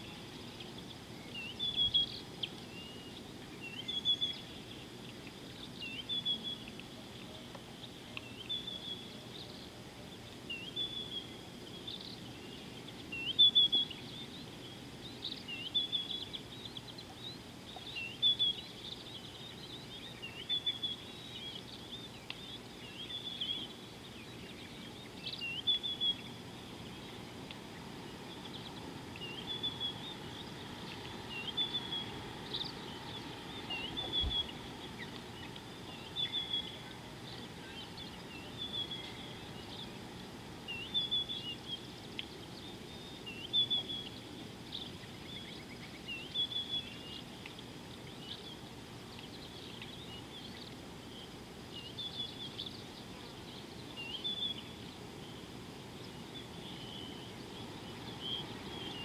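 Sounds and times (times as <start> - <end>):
small bird chirping: 0.0 - 9.8, 10.5 - 40.1
faint background hiss: 0.0 - 59.0.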